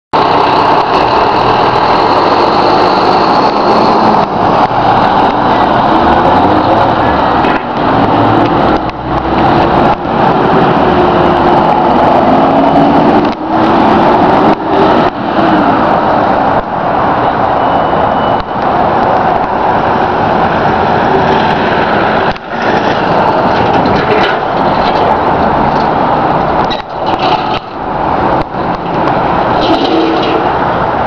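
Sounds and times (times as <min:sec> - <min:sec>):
fire trucks driving past: 0:00.2 - 0:31.0.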